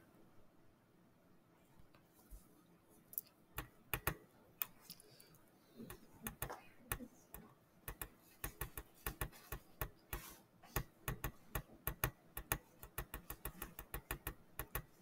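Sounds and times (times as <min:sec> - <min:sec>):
rapid light clicking: 0:03.2 - 0:05.0, 0:05.9 - 0:15.0.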